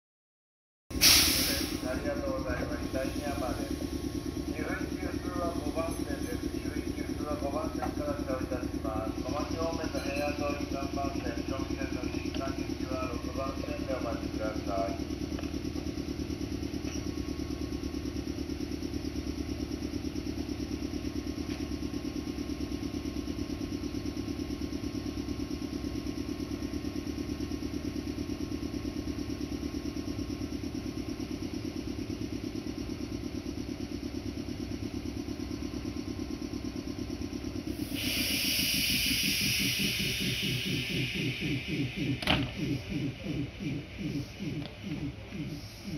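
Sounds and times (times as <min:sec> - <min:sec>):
train equipment mechanical chugging: 0:00.9 - 0:45.9
loud air hiss: 0:01.0 - 0:01.9, 0:37.7 - 0:41.8.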